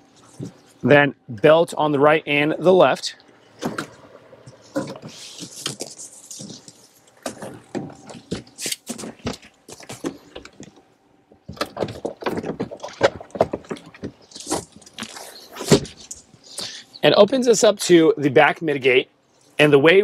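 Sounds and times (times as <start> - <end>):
seat latches clicking and knocking: 11.4 - 15.1.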